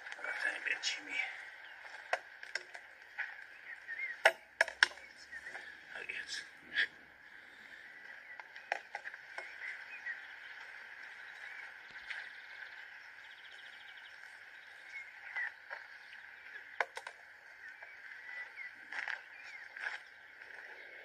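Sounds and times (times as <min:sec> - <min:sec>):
sharp clicks: 0:01.8 - 0:03.6, 0:04.2 - 0:05.6.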